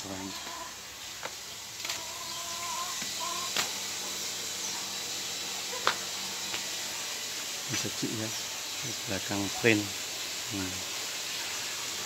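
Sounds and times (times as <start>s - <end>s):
running water hiss: 0.0s - 12.0s.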